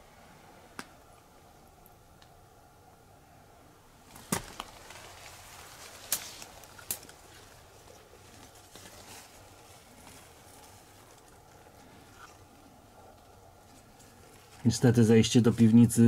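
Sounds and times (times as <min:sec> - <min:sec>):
rustling through rubble and weeds: 0:03.9 - 0:16.0
sharp cracks: 0:04.1 - 0:07.6.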